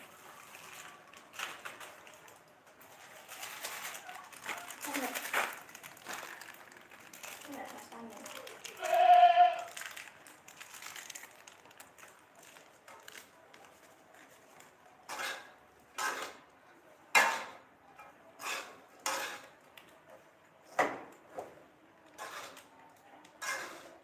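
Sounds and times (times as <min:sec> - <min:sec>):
plastic packet rustling: 0:00.0 - 0:14.9
metal spatula scraping a wok: 0:15.1 - 0:16.4, 0:18.4 - 0:19.5, 0:22.2 - 0:22.7, 0:23.4 - 0:24.0.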